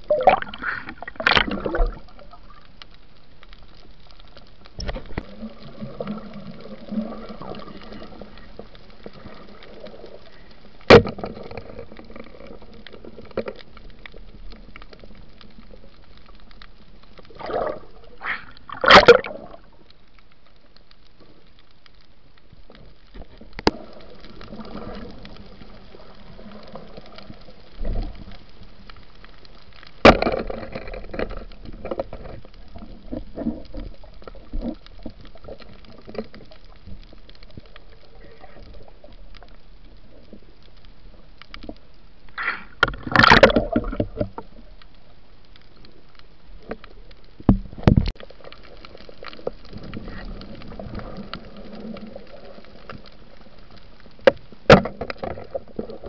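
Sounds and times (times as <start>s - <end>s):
muffled underwater hiss: 0.0s - 56.0s
rush of water noise: 17.3s - 19.7s, 42.3s - 44.6s.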